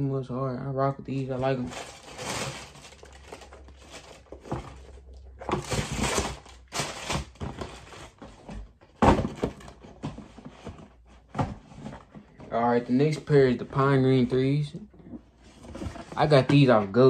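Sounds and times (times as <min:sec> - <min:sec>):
paper rustling and crinkling: 0:01.4 - 0:08.6.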